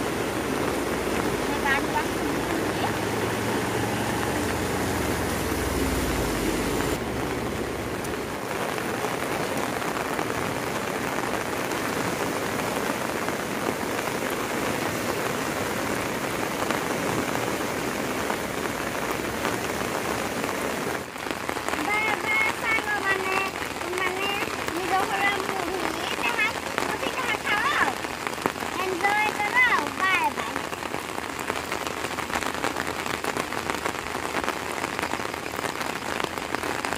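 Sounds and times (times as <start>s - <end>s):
vehicle engine rumble: 0.0s - 10.2s
rain on concrete road: 0.0s - 36.9s.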